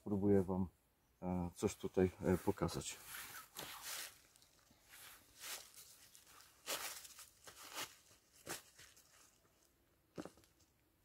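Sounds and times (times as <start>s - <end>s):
rustles and scuffs of steps: 2.2s - 10.7s.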